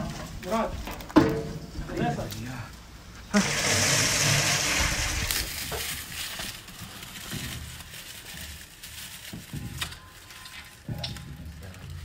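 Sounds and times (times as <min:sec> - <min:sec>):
dry kindling rustling and snapping: 0:05.1 - 0:12.0.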